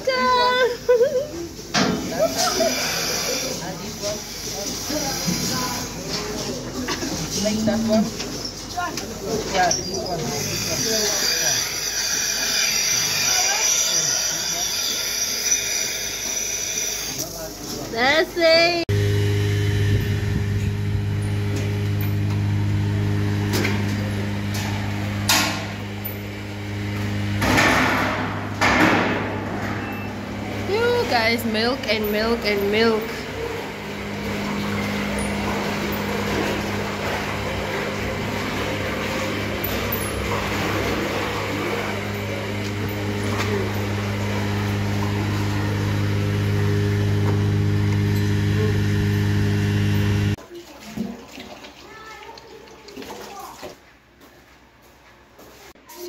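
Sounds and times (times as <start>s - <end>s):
tank motor humming: 18.9s - 28.2s, 29.1s - 50.4s.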